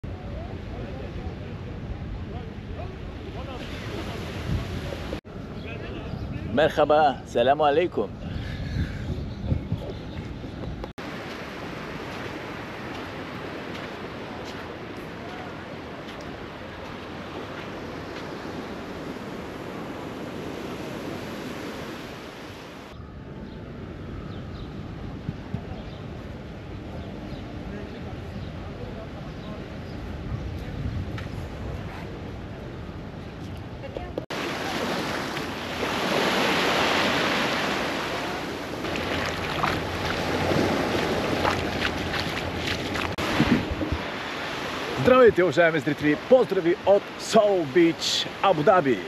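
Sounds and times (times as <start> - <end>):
wind buffeting microphone: 1.2 - 7.3, 8.1 - 22.1, 22.9 - 34.4, 35.5 - 45.0
surf washing onto beach: 3.0 - 5.2, 11.0 - 22.9, 34.3 - 49.0
water splashes: 34.3 - 49.0.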